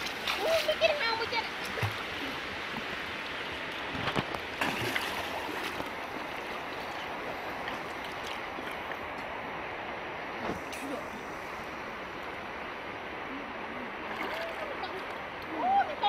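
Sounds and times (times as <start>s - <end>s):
water splashes: 0.0s - 9.2s, 13.3s - 16.0s
water sloshing: 3.6s - 9.2s, 14.0s - 15.3s.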